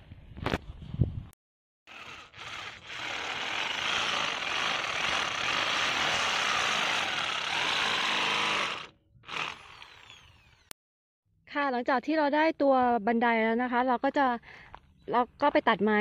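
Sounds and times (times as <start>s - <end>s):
electric drill boring bamboo: 1.9s - 10.7s.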